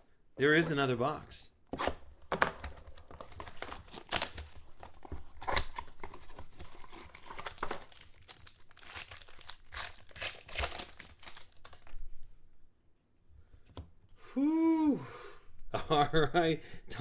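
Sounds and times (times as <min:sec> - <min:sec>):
foil wrapper tearing and crumpling: 0:03.4 - 0:04.6, 0:05.4 - 0:11.9.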